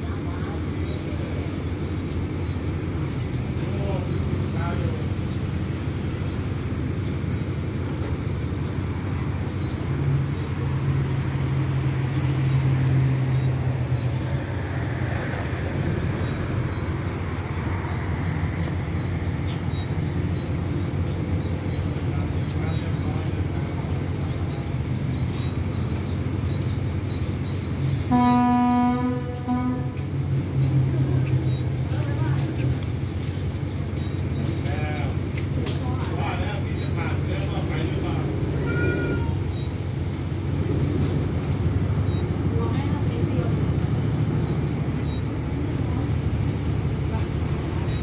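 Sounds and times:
diesel train engine drone: 0.0 - 48.0
train horn blast: 28.0 - 30.3.

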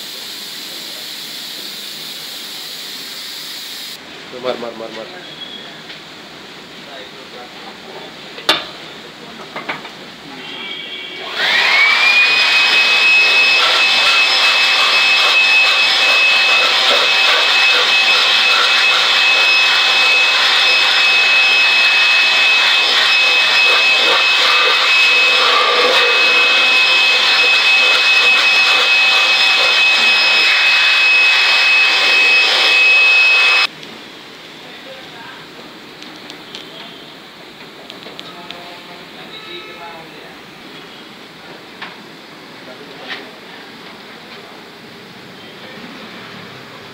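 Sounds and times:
electric air blower whining: 11.2 - 33.7.

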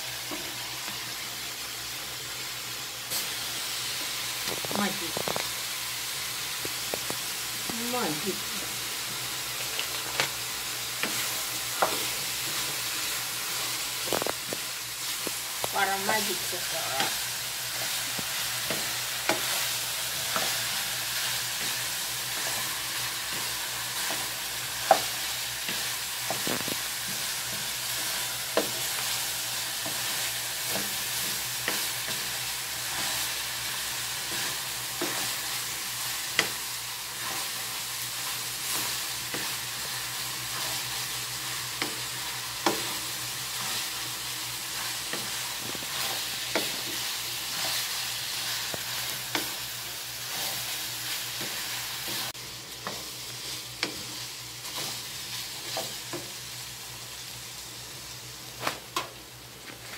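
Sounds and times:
meat sizzling in a wok: 0.0 - 59.9.

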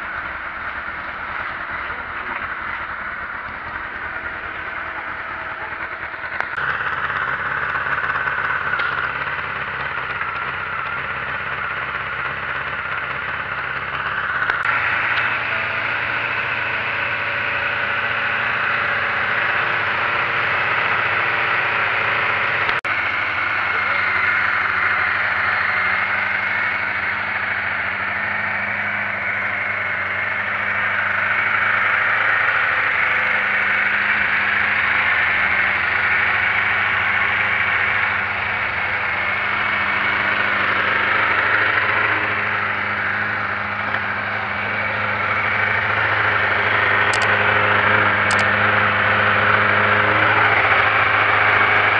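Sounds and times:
motorcycle engine idling: 0.0 - 51.9
short clicks: 47.1 - 47.3, 48.3 - 48.5.

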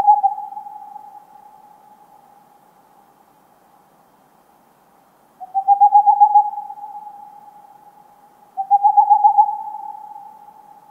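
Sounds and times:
owl hooting: 0.0 - 2.4, 5.4 - 10.9.

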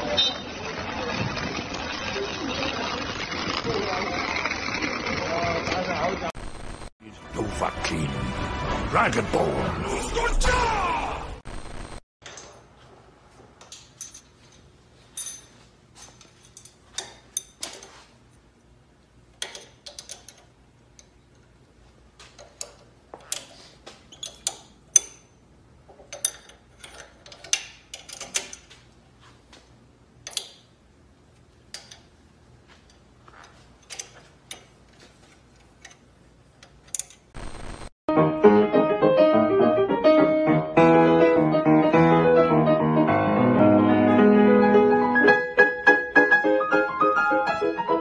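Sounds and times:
light metallic clicks and clinks: 13.6 - 18.0, 22.4 - 25.4, 26.0 - 28.8, 30.2 - 30.7, 32.8 - 37.3.

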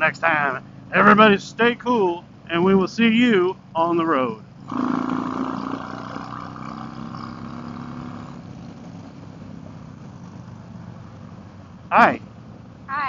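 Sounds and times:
motorcycle engine rumble: 0.0 - 13.0
road noise: 0.0 - 13.0.

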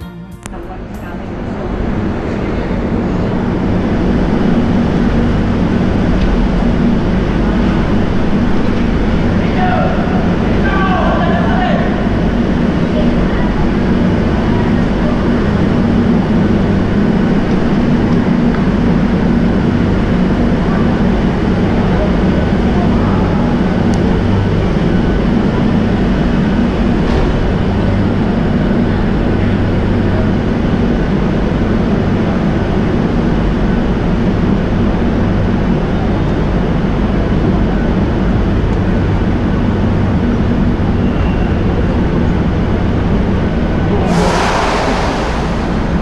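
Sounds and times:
underground station rumble: 0.0 - 46.0
brief rush of noise: 43.9 - 46.0.

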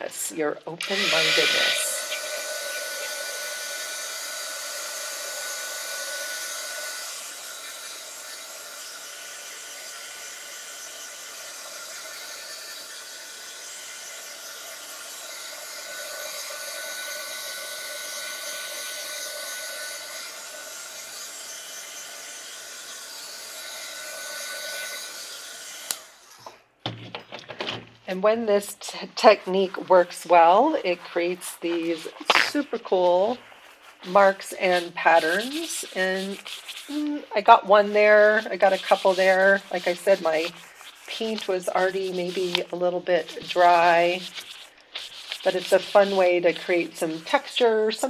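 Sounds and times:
blow dryer running: 0.8 - 26.5.

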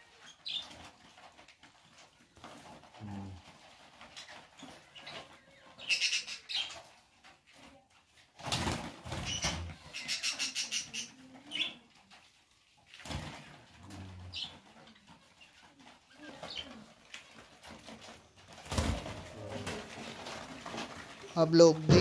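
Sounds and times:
birds fluttering: 0.0 - 22.0
birds chirping: 4.0 - 7.2, 9.0 - 11.9, 13.3 - 20.4.

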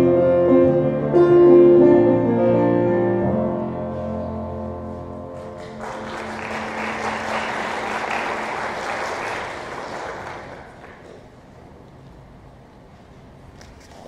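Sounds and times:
congregation applauding: 5.4 - 11.4.

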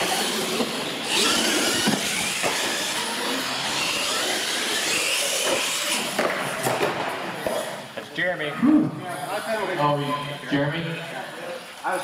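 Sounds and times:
electric motors whining: 0.0 - 7.8.

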